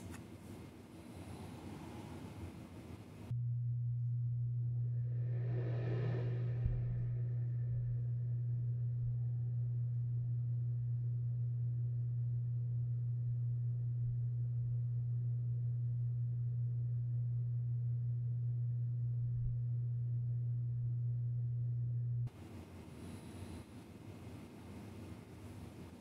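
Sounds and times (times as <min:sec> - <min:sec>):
furnace humming: 0:00.0 - 0:26.0.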